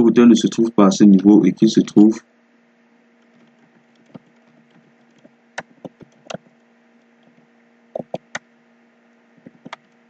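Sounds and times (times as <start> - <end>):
faint steady hum: 0.0 - 10.0
computer keyboard keystrokes: 3.2 - 7.4, 8.0 - 8.4, 9.4 - 10.0.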